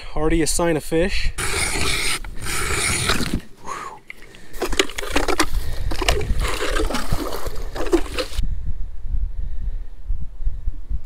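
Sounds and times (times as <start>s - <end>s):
ice scoop scraping and splashing: 1.4s - 3.5s, 4.1s - 8.4s
low wind rumble on microphone: 5.0s - 11.0s.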